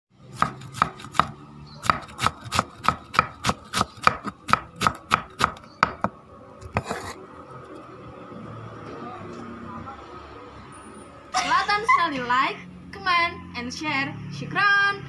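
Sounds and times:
food chopped on a board: 0:00.4 - 0:06.9.

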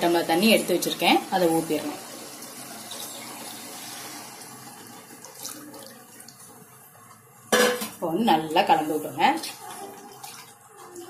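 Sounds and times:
water pouring into a pot: 0:00.0 - 0:07.1.

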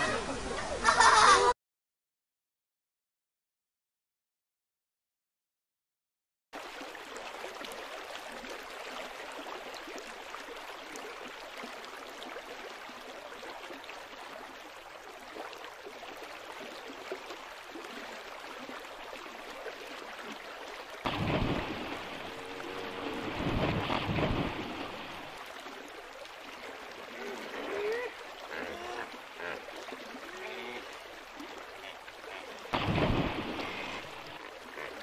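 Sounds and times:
running river water: 0:00.0 - 0:01.6, 0:06.6 - 0:35.0
heavy splashing in water: 0:21.0 - 0:25.8, 0:32.3 - 0:34.4.

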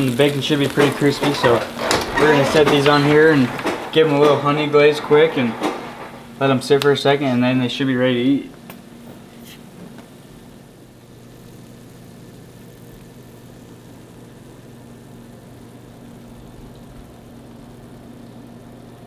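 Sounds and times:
appliance motor humming: 0:00.0 - 0:06.6.

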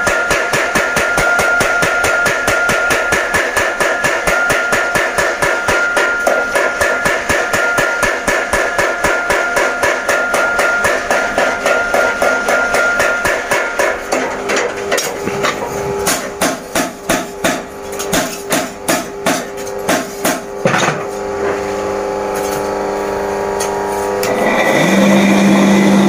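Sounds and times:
power hammer pounding metal: 0:00.0 - 0:21.3.

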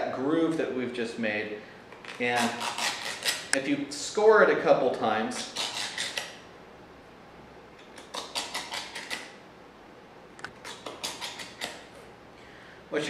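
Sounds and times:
tool scraping plastic edge: 0:02.1 - 0:03.6, 0:05.4 - 0:06.4, 0:08.0 - 0:09.3, 0:10.5 - 0:11.9.

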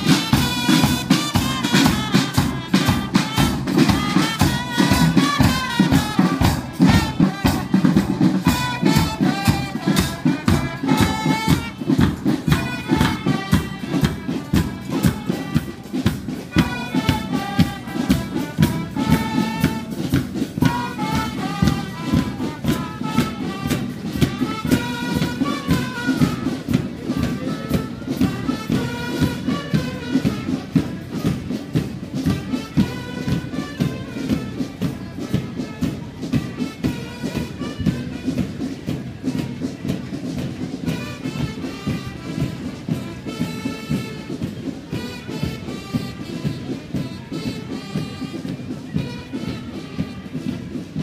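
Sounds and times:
brass instruments playing tune: 0:00.0 - 0:51.0
marching drum beat: 0:00.0 - 0:51.0.

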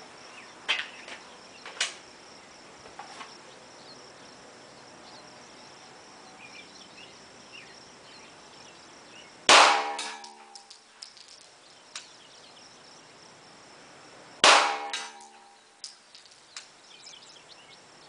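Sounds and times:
high insect chirp: 0:00.0 - 0:18.0.

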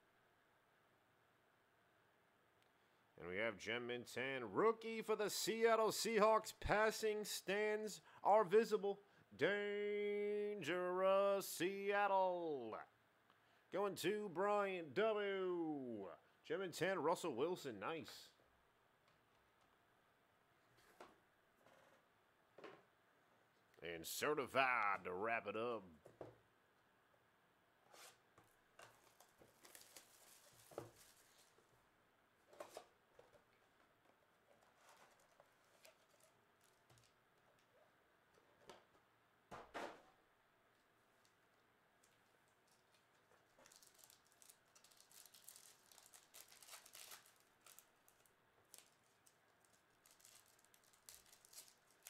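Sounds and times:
foil wrapper crinkling: 0:29.0 - 0:31.6, 0:34.8 - 0:37.2, 0:42.4 - 0:52.0.

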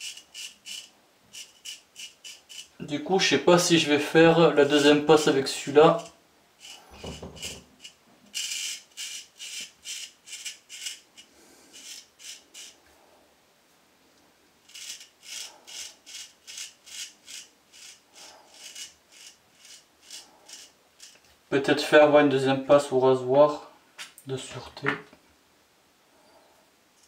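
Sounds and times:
razor scraping stubble: 0:00.0 - 0:02.9, 0:04.6 - 0:12.8, 0:14.7 - 0:21.3.

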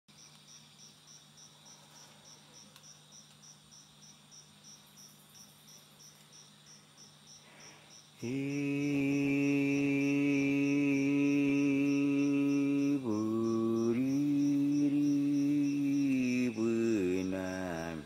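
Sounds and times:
insects chirping: 0:00.1 - 0:18.0
faint low drone: 0:08.2 - 0:18.0
man humming a low note: 0:08.2 - 0:18.0.

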